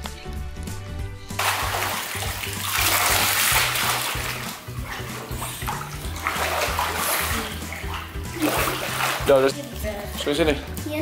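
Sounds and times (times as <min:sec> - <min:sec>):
background music with bass: 0:00.0 - 0:11.0
pool water splashing: 0:01.3 - 0:10.6.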